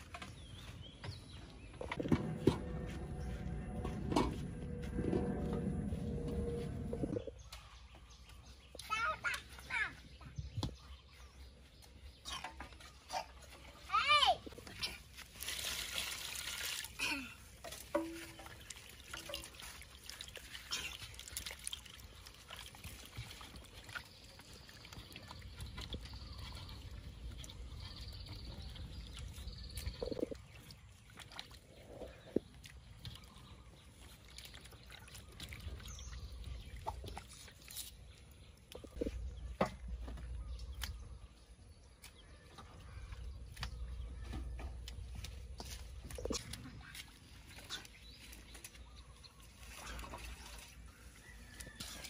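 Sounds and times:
water sloshing and trickling: 0.0s - 52.0s
water poured into metal basin: 15.2s - 27.6s.

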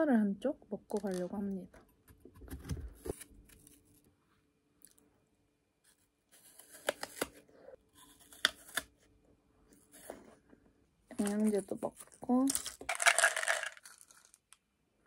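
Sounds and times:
apple crunching: 6.4s - 9.0s.

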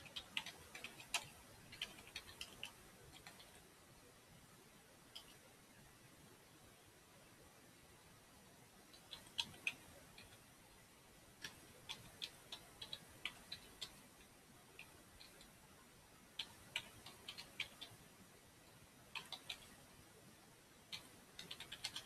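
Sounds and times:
computer keyboard typing: 0.0s - 3.7s, 8.9s - 10.4s, 11.4s - 15.6s, 16.3s - 19.8s, 20.8s - 22.0s.

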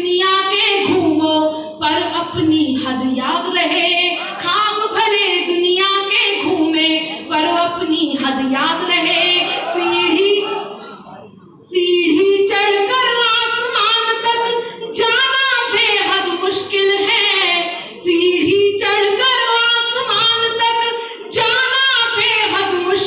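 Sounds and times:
woman singing unaccompanied: 11.7s - 23.0s.

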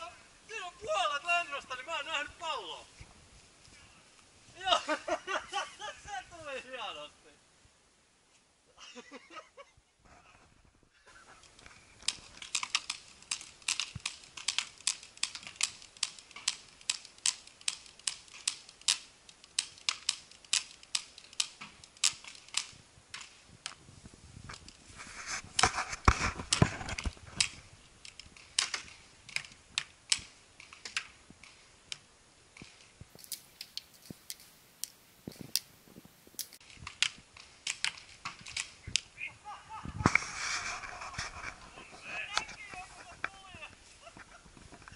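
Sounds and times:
paintball markers firing: 12.0s - 23.4s, 36.4s - 39.1s.

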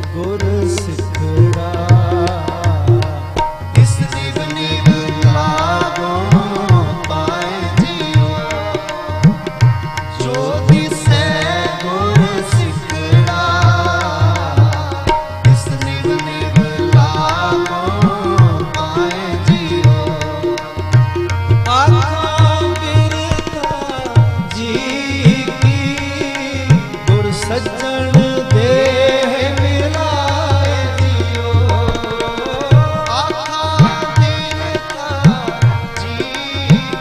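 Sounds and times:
harmoniums: 0.0s - 37.0s
men singing devotional song: 0.0s - 37.0s
tabla rhythm with pitch swoops: 0.0s - 37.0s.

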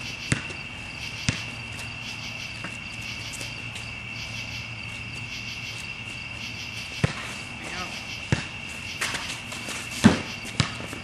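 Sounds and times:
crickets chirping: 0.0s - 11.0s
basketball bouncing on court: 0.2s - 0.6s, 1.2s - 1.5s, 8.3s - 9.3s, 10.0s - 11.0s.

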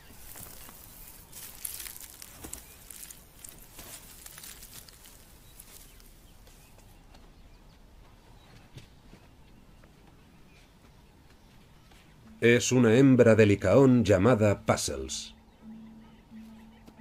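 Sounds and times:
animal scuffling and scraping: 0.0s - 7.2s.

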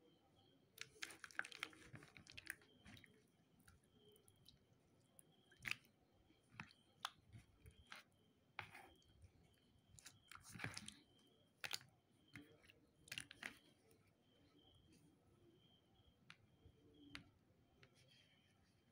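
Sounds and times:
wet squelches: 0.7s - 15.0s.

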